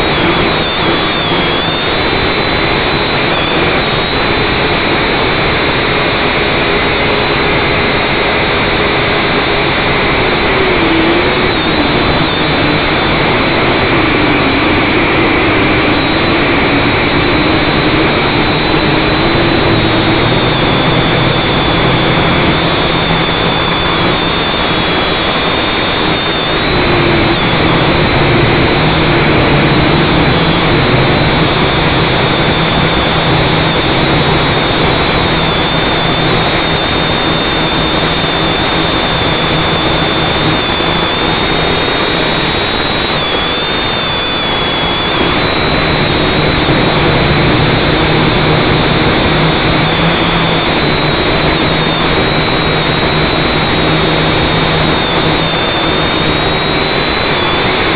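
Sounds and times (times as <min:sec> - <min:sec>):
electric motors whining: 0:00.0 - 0:57.9
propeller wash and wind rushing: 0:00.0 - 0:57.9.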